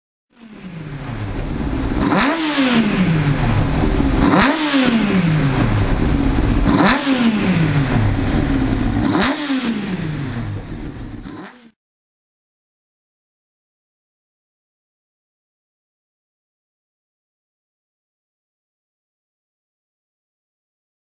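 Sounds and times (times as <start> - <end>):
motorcycle engine revving: 0.4 - 11.8.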